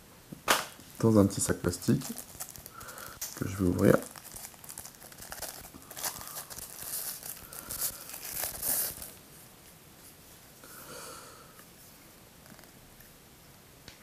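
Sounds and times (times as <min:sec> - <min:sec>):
faint handling noise: 0:00.8 - 0:10.6
plastic bag crinkling and tearing: 0:01.0 - 0:09.2.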